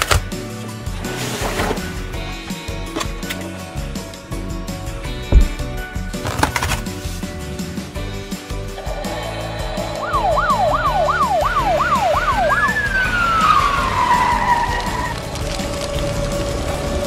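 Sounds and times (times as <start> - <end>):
background music: 0.0 - 17.0
toy electronic siren: 9.0 - 13.1.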